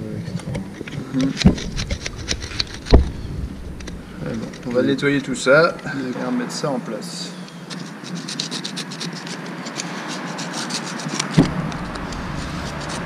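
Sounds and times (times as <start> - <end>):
screwdriver scraping deposits: 7.7 - 13.0.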